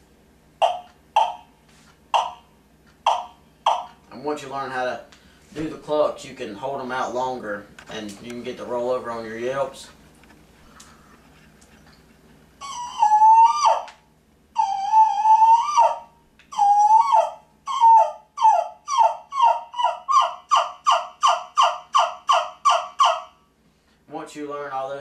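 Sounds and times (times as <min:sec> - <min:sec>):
turkey call yelps: 0:00.6 - 0:01.5, 0:02.2 - 0:04.0, 0:12.6 - 0:14.0, 0:14.6 - 0:23.5.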